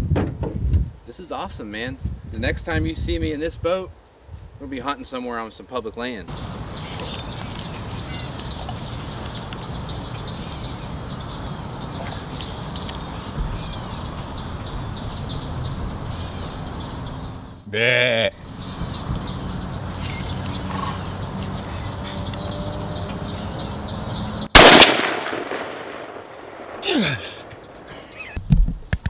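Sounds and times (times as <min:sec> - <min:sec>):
insects trilling: 0:06.3 - 0:29.0
man saying yeah: 0:26.8 - 0:27.4.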